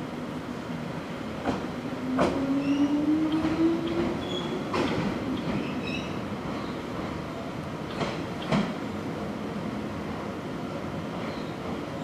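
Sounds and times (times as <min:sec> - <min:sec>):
train wheels clacking: 0:01.4 - 0:07.2, 0:07.9 - 0:08.8.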